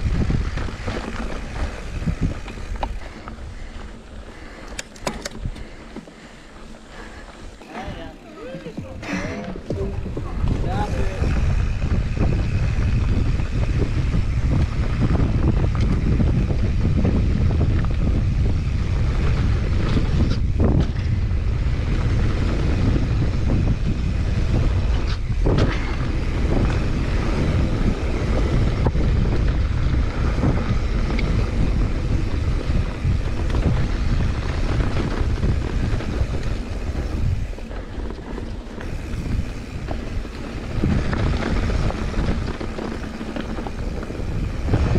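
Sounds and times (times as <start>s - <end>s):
wind noise on microphone: 0.0s - 44.9s.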